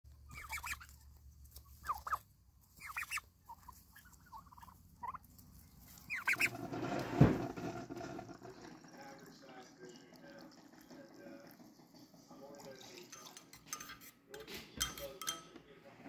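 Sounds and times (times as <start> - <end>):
turkeys calling: 0.1 - 6.8
liquid being poured: 6.5 - 13.4
heavy thump: 6.8 - 8.1.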